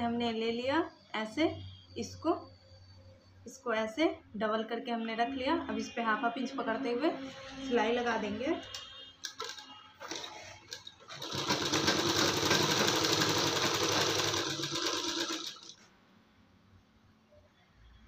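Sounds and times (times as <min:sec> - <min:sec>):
sewing machine running: 0:09.2 - 0:15.8.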